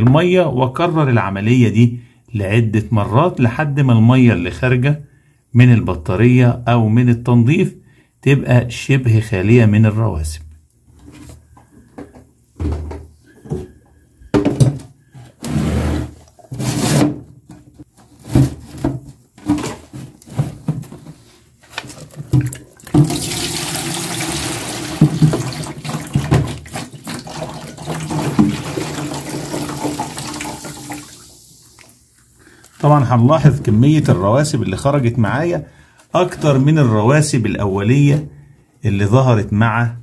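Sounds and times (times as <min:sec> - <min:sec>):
water pouring into plastic tub: 0:21.8 - 0:32.1.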